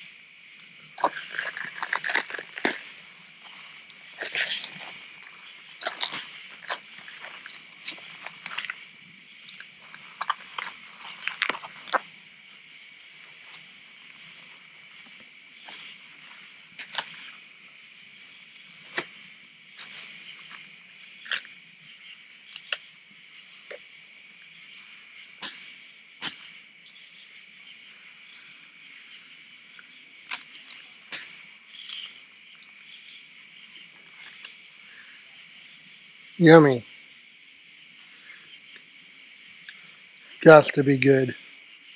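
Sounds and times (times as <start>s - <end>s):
crickets and insects chirping: 0.0s - 41.9s
lettuce leaves rustling: 1.0s - 21.6s, 30.2s - 34.6s.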